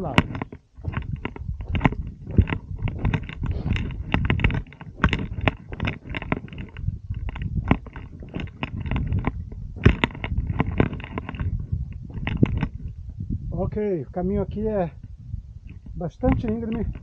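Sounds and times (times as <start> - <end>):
footsteps on gravel: 0.0 - 13.2
low rumble on microphone: 0.0 - 17.0.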